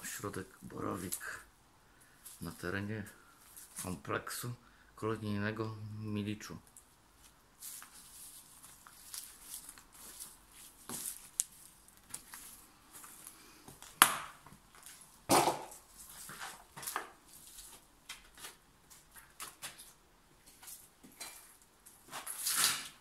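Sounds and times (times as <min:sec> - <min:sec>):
footsteps crunching over debris: 0:02.2 - 0:04.0, 0:07.1 - 0:23.0.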